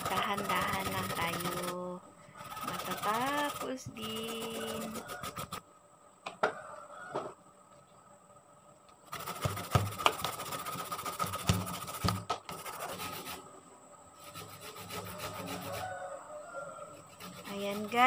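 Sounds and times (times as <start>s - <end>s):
grating root on metal grater: 0.0s - 1.8s, 2.4s - 5.6s, 9.1s - 13.4s, 14.2s - 15.9s, 17.0s - 18.0s.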